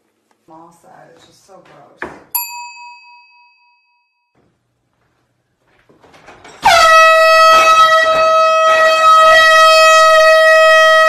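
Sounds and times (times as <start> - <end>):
air horn blaring: 6.6 - 11.0.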